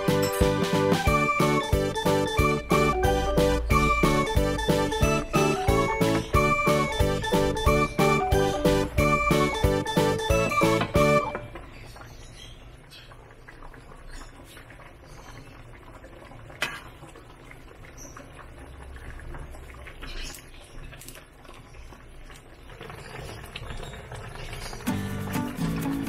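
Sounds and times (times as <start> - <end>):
soup bubbling in a wok: 11.5 - 25.5.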